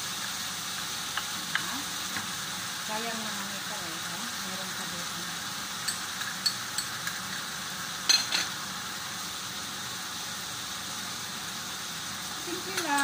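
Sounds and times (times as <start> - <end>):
chicken sizzling in frying pan: 0.0 - 13.0
metal spoon clinking in glass bowl: 5.8 - 7.2.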